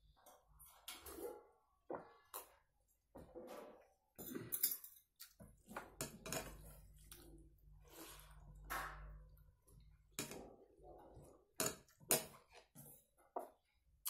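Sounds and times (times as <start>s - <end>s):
soft chewing: 6.5s - 8.6s.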